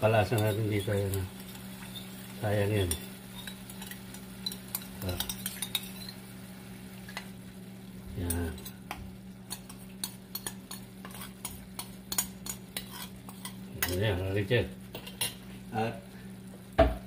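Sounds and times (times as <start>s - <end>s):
metal spoon scraping a bowl: 9.5s - 14.0s.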